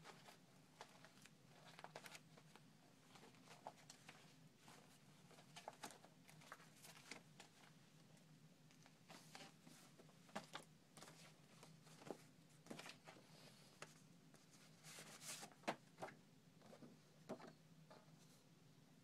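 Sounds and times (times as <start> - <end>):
faint low hum: 0.0 - 19.0
paper rustling and tapping: 0.1 - 4.3, 5.3 - 7.6, 15.0 - 17.6.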